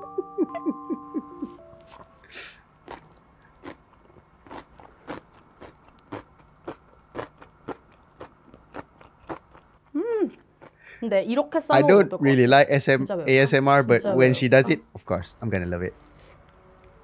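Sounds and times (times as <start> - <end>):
person chewing crunchy food: 2.8 - 10.8.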